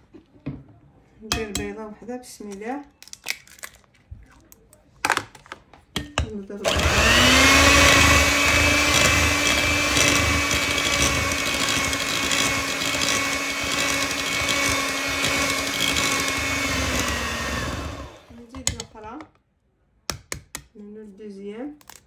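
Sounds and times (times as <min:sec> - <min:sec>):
electric hand mixer whirring: 0:06.6 - 0:18.4.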